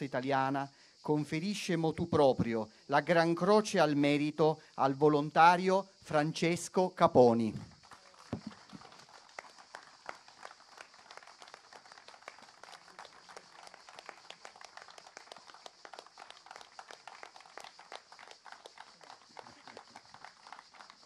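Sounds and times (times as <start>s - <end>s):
faint audience applause: 7.7s - 21.0s.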